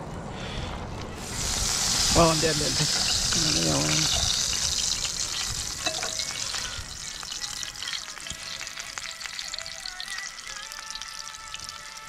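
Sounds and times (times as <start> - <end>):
meat sizzling on grill pan: 1.2 - 12.0.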